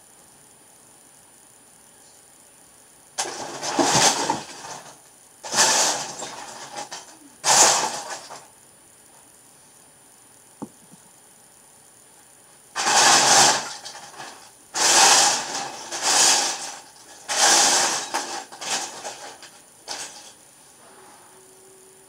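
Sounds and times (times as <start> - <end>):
plastic bricks clattering: 3.2 - 8.5, 12.8 - 20.4.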